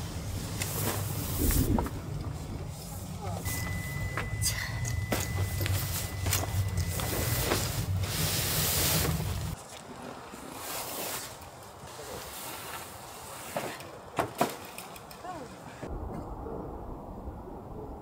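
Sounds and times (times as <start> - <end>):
wind rumbling on microphone: 0.0 - 3.6, 15.8 - 18.0
nylon bag rustling and scraping: 5.1 - 13.7.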